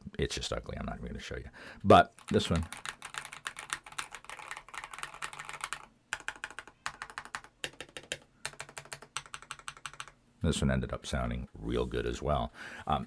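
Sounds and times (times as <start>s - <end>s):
mechanical keyboard typing: 2.2s - 10.2s.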